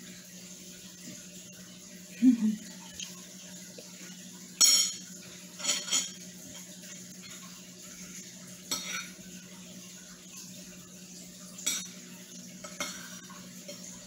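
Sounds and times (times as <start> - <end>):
metal fork clinking on dishes: 4.6 - 6.2.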